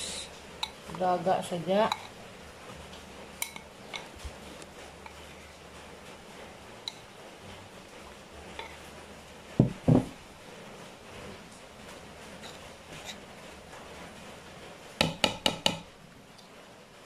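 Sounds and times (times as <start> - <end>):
bowl thumping on wooden table: 9.6 - 10.2.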